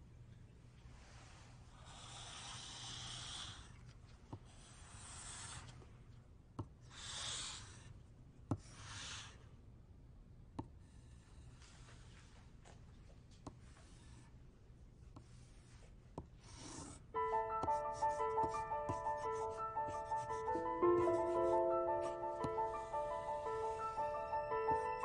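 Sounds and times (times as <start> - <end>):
pencil scribbling on paper: 4.4 - 5.8, 6.9 - 7.9, 8.6 - 9.4, 15.2 - 25.0
pencil tapping page: 15.1 - 25.0.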